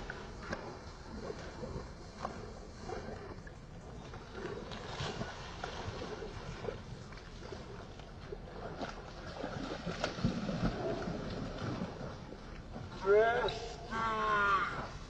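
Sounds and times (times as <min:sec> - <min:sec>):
wind rumbling on microphone: 0:00.0 - 0:13.0
dog splashing in water: 0:08.6 - 0:12.2.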